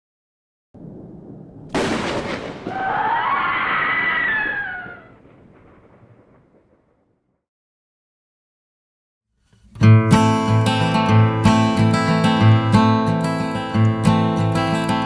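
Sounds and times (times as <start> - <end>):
thunder-like crash: 0.8 - 7.2
long wailing cry: 2.7 - 5.2.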